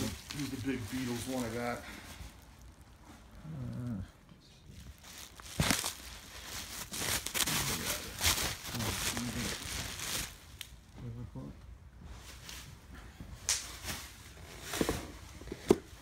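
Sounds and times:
plastic wrapping crinkling: 0.0 - 3.1, 4.7 - 10.9.

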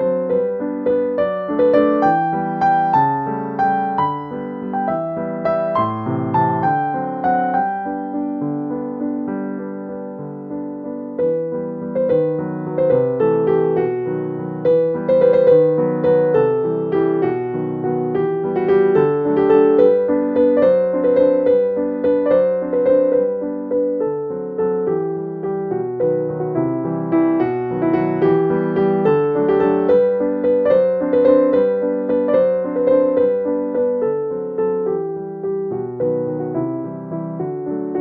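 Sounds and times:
gentle piano melody: 0.0 - 38.0.

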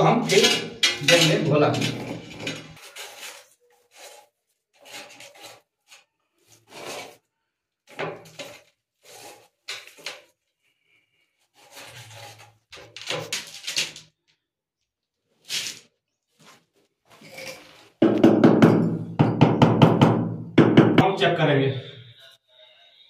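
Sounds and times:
steel trowel scraping mortar: 0.0 - 7.3, 8.3 - 10.1, 11.4 - 13.0.

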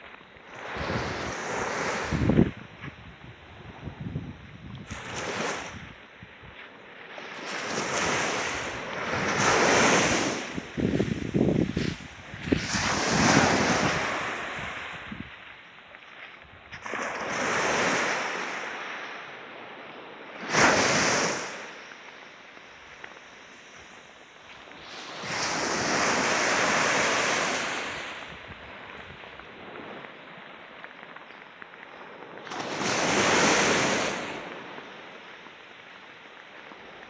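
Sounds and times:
waves breaking on sandy beach: 0.0 - 37.0
wind buffeting microphone: 0.6 - 6.6, 7.8 - 15.6, 24.7 - 30.6.

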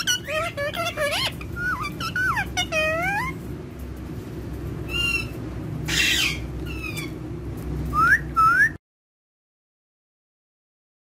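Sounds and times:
parakeet chirping calls: 0.0 - 3.4, 4.9 - 7.2
low background rumble: 0.0 - 8.8.

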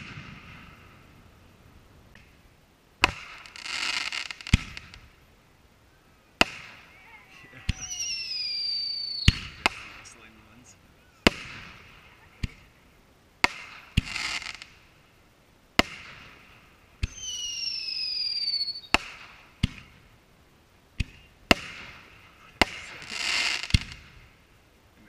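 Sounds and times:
firework bangs: 0.0 - 1.4, 2.1 - 5.2, 6.4 - 15.1, 15.7 - 20.2, 20.9 - 24.6
firework crackling: 0.0 - 25.0
falling firework whistle: 6.4 - 9.8, 17.0 - 19.9.

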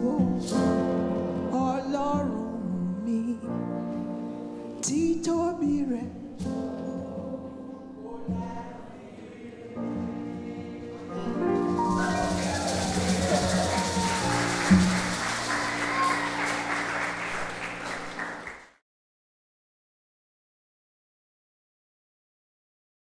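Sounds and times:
congregation singing with piano: 0.0 - 18.5
applause: 11.5 - 18.8.

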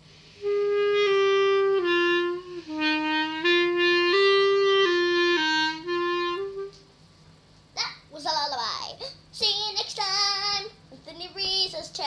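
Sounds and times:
child playing clarinet: 0.4 - 6.8.

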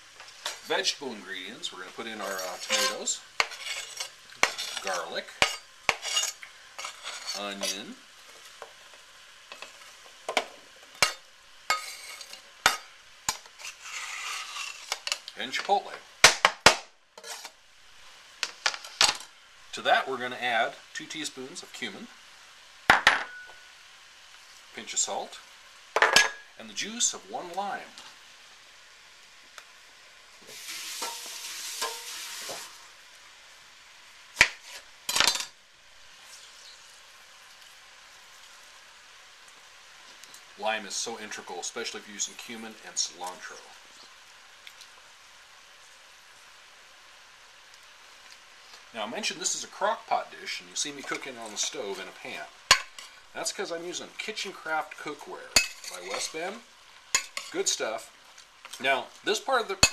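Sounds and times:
faint sizzle: 0.0 - 59.9
onion pieces hitting pot: 52.7 - 53.1.

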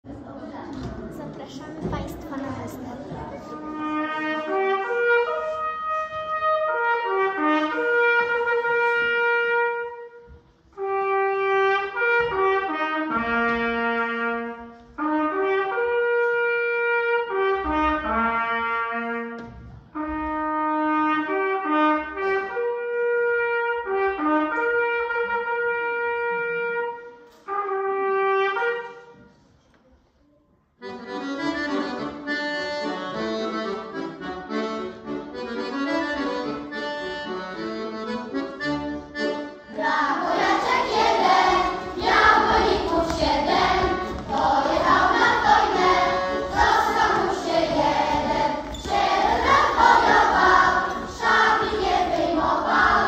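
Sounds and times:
accordion: 0.8 - 29.3, 30.8 - 53.0
solo trumpet melody: 3.5 - 29.2.

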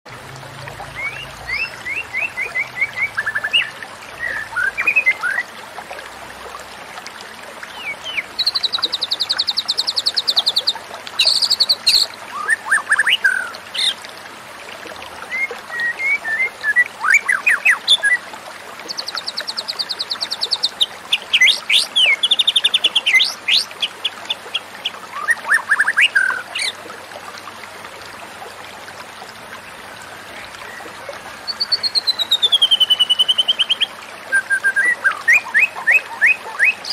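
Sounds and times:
bird singing chirps and trills: 0.8 - 5.5, 7.6 - 14.0, 15.2 - 18.2, 18.9 - 26.8, 30.1 - 36.9.

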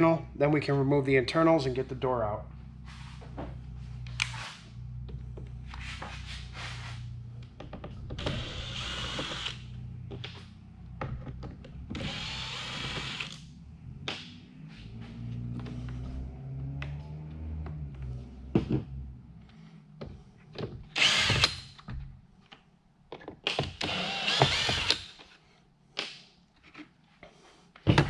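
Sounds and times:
cordless drill running: 8.2 - 9.7, 12.0 - 13.4, 20.9 - 21.6, 23.8 - 25.1.

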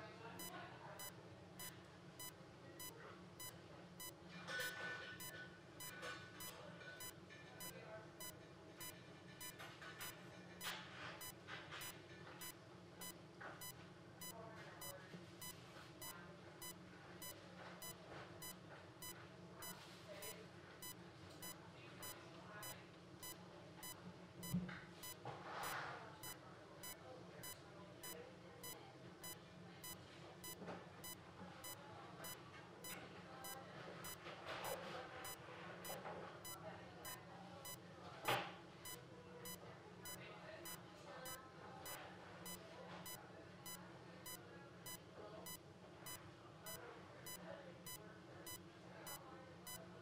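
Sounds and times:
patient monitor beeping: 0.4 - 13.8, 14.8 - 37.8, 41.8 - 49.9.

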